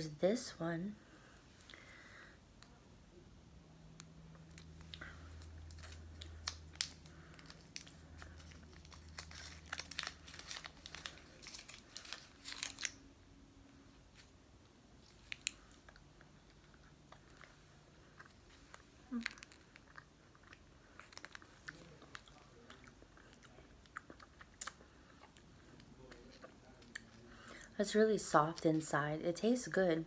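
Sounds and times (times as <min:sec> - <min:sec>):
candy wrapper crinkling: 0:04.4 - 0:13.1, 0:15.0 - 0:17.6.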